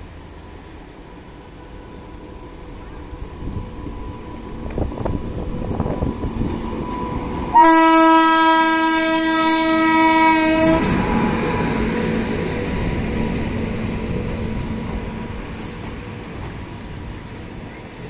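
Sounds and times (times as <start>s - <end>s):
train wheels rumbling on rails: 0.0s - 18.0s
locomotive horn blast: 7.5s - 11.7s.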